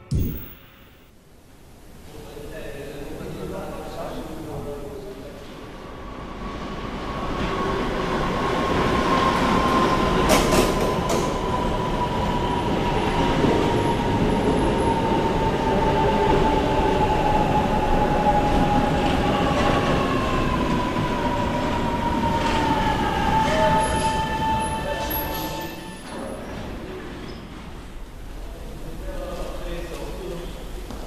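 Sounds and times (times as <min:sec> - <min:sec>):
high whine falling in pitch: 0:00.0 - 0:01.1
metro train arriving: 0:02.0 - 0:30.9.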